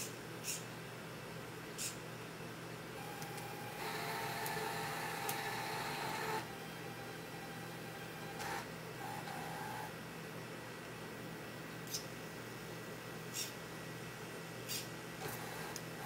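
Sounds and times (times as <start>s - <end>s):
electric motors whirring: 3.0s - 9.9s, 15.2s - 16.0s.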